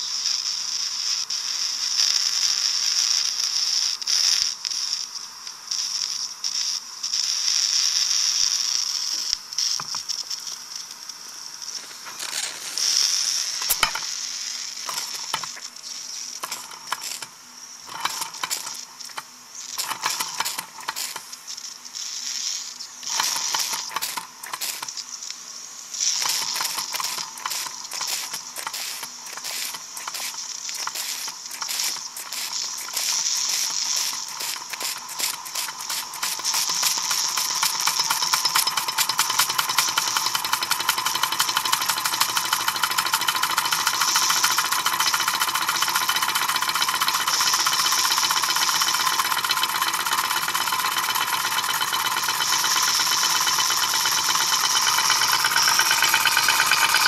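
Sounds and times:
steam hissing: 0.0s - 57.0s
small engine parts clattering: 13.6s - 14.1s, 14.8s - 15.7s, 16.4s - 17.3s, 17.9s - 21.3s, 23.0s - 25.0s, 26.1s - 57.0s.

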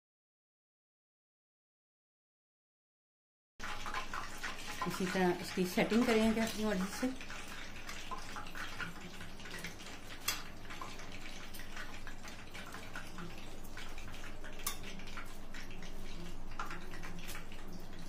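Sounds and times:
food sizzling in frying oil: 3.6s - 18.0s.

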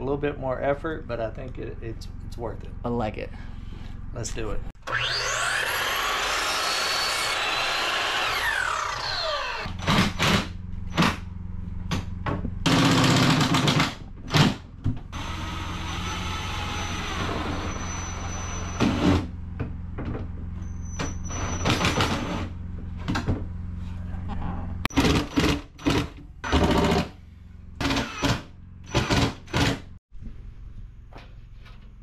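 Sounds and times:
miter saw cutting: 4.8s - 11.2s, 15.2s - 19.3s, 24.9s - 27.2s
cordless drill driving screws: 27.8s - 29.7s.

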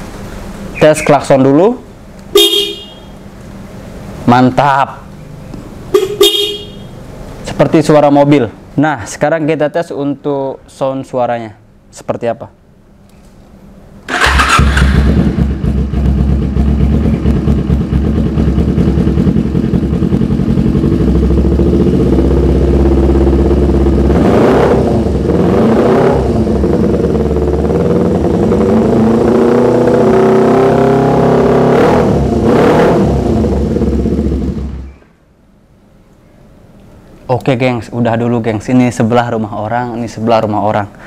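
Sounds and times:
motorcycle engine idling and revving: 5.4s - 7.2s, 14.1s - 35.2s.

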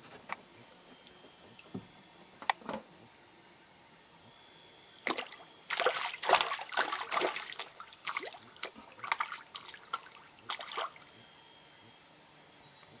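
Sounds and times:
crickets chirping: 0.0s - 13.0s
fish splashing at water surface: 5.1s - 11.0s.

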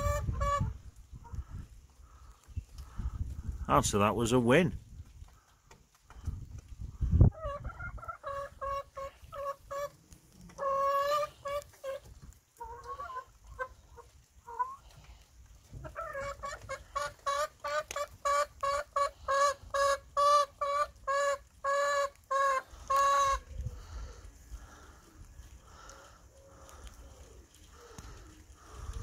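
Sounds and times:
hen clucking: 0.0s - 3.0s, 7.0s - 15.0s, 15.7s - 24.8s.

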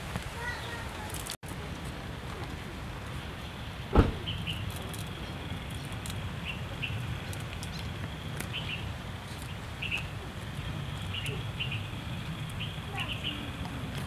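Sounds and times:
small birds chirping: 0.4s - 1.1s, 4.0s - 14.0s
leaves snapping and rustling: 1.0s - 1.4s
thump: 3.9s - 4.4s.

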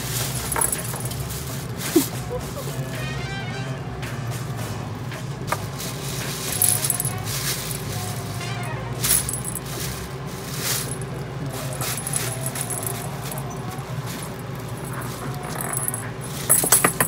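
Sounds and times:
plastic bag rustling: 0.0s - 2.8s, 5.5s - 17.0s.

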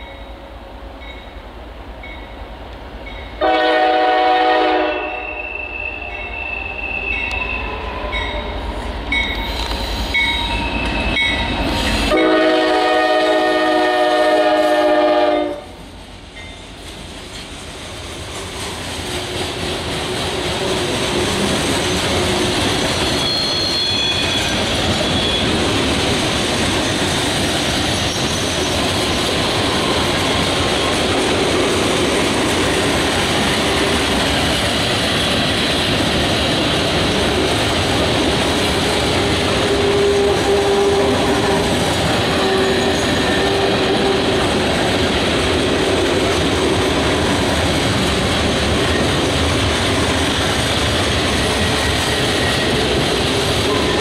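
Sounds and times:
diesel locomotives rumbling: 0.0s - 54.0s
train horn blast: 3.4s - 8.6s, 12.0s - 15.8s, 39.2s - 44.4s
train wheels clickety-clack: 15.8s - 54.0s.

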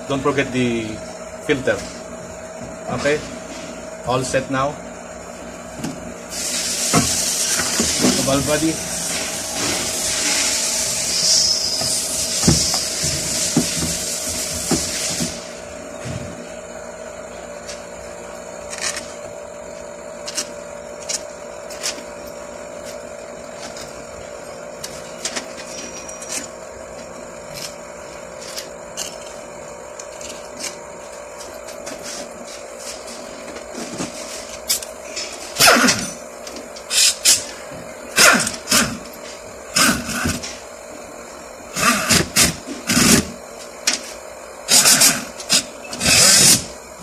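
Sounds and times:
steady low hum: 0.0s - 47.0s
loud hiss: 6.3s - 15.6s.

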